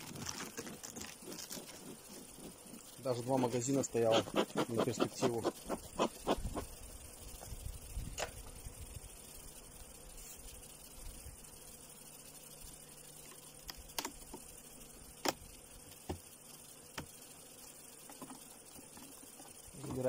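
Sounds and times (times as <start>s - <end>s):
honeybees buzzing: 0.0s - 20.0s
wooden hive frames clicking: 13.2s - 14.6s.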